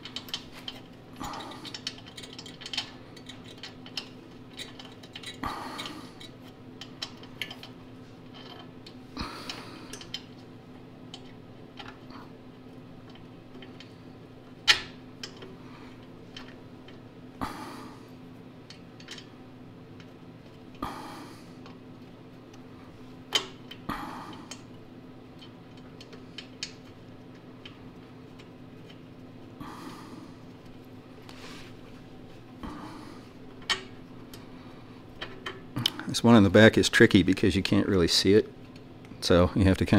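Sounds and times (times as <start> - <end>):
small metal parts clicking: 1.4 - 7.7.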